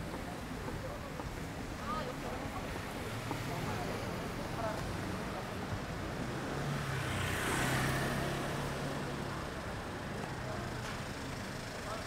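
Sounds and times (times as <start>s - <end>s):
car passing by: 6.2s - 9.5s.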